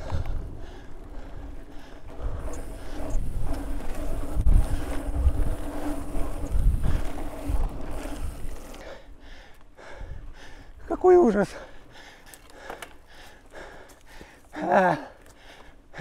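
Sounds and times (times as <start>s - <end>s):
wind buffeting microphone: 0.0s - 10.8s.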